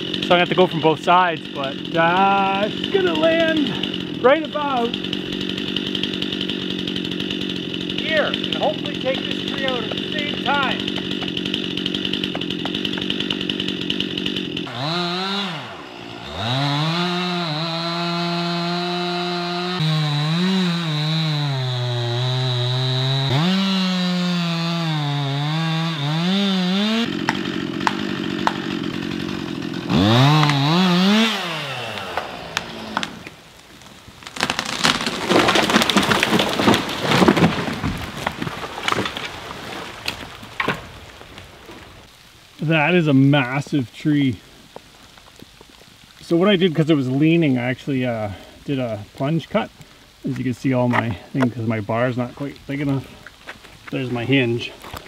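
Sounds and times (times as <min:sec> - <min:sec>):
chainsaw cutting wood: 0:00.0 - 0:42.2
tree falling and cracking: 0:01.5 - 0:43.8, 0:44.4 - 0:55.0.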